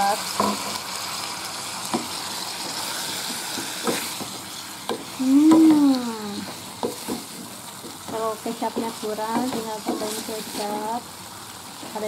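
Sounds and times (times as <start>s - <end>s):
vegetables sizzling in a frying pan: 0.0s - 12.0s
spatula tapping and scraping pan: 1.9s - 5.8s, 6.4s - 10.9s.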